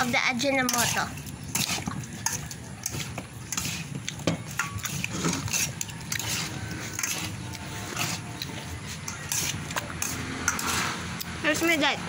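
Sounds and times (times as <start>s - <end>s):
metal spoons clinking on steel bowl: 0.0s - 11.8s.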